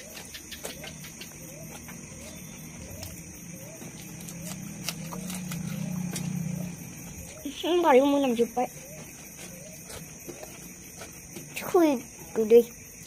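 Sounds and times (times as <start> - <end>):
chewing: 0.8 - 7.4.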